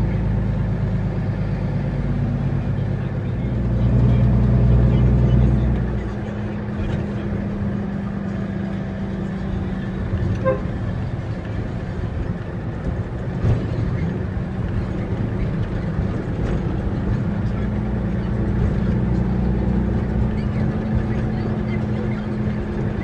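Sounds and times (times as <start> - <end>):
diesel truck engine from cab: 0.0 - 23.0
short horn toot: 10.4 - 10.8.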